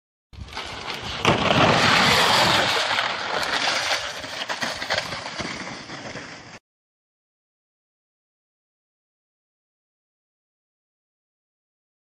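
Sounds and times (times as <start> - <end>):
sled scraping down icy slide: 0.4 - 6.6
small knocks and rattles on ice: 0.4 - 6.6.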